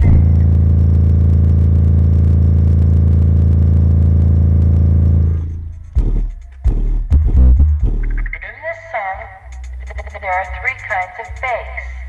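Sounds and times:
buzzing rattle: 0.0s - 7.1s
bass hits of music: 0.0s - 8.6s
subwoofer low bass note: 0.0s - 8.6s.

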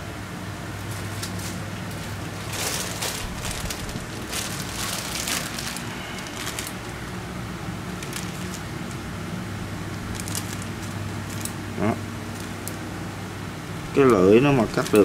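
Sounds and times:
steady low hum: 0.0s - 15.0s
plastic crinkling and rustling: 0.8s - 7.2s, 7.9s - 9.0s, 10.0s - 11.6s, 12.3s - 12.8s, 13.9s - 15.0s
shears cutting plastic bag: 1.0s - 7.0s, 8.0s - 9.0s, 10.1s - 11.5s, 14.0s - 15.0s.

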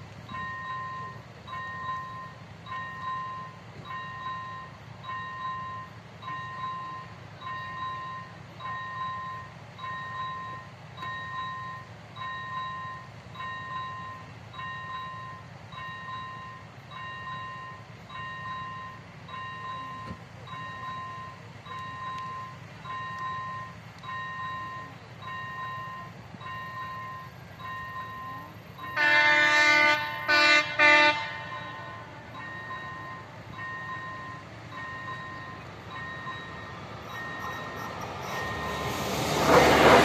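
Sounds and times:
crossing warning bell dinging: 0.0s - 40.0s
train horn blasts: 28.8s - 32.4s.

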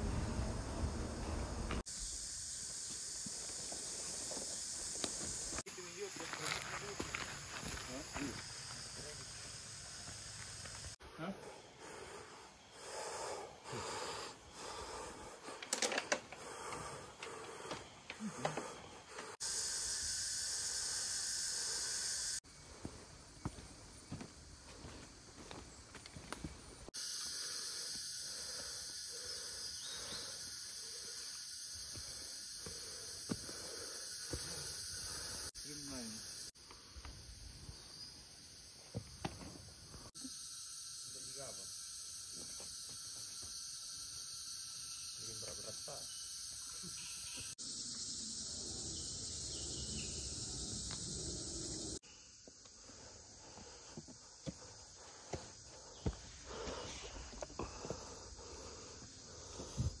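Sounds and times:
forest insects droning: 0.0s - 60.0s
footsteps on a dirt trail: 2.8s - 11.0s, 22.7s - 26.9s.

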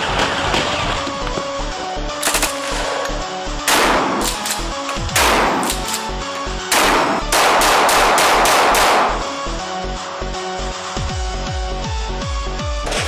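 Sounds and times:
electronic music with steady beat: 1.2s - 13.0s
gunshots with echo: 3.6s - 9.6s.

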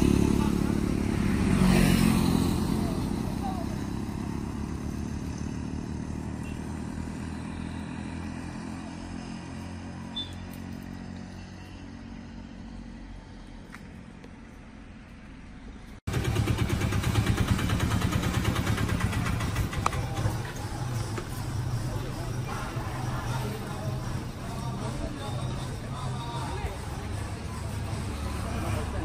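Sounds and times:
engine droning: 0.0s - 29.0s
engine with fast pulsing beat: 16.1s - 29.0s.

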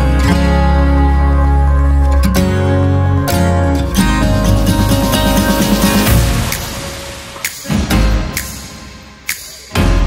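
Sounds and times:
strummed acoustic guitar: 2.1s - 6.5s.

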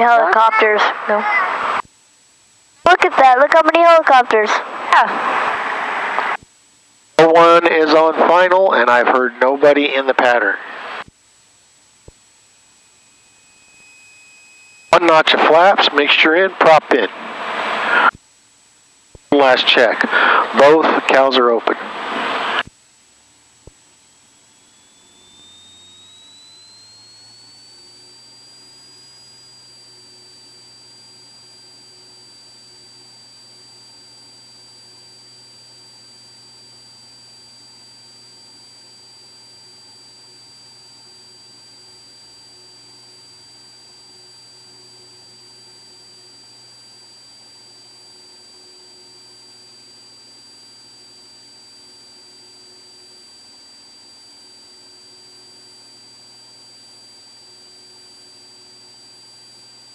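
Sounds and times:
high whine rising in pitch: 0.0s - 6.4s, 7.0s - 18.4s, 19.0s - 59.9s
aircraft engine drone: 2.9s - 6.4s, 7.2s - 11.0s, 12.6s - 18.2s, 19.3s - 22.7s, 23.4s - 35.9s.

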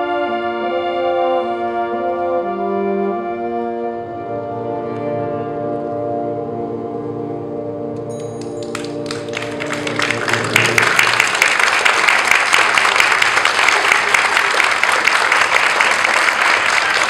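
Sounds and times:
audience applause: 8.5s - 17.0s
concert band held chord: 8.7s - 17.0s.

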